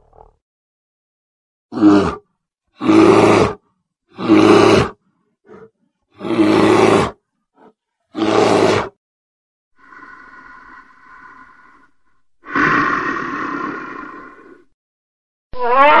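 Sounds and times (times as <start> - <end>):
animal roars: 1.7 - 9.0, 9.8 - 14.8.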